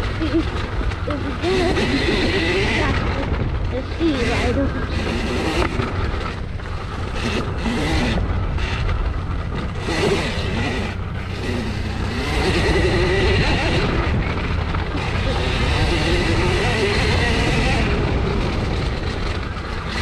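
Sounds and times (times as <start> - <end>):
electric motor whine: 0.0 - 20.0
tyres on dirt: 0.0 - 20.0
wind buffeting: 0.0 - 20.0.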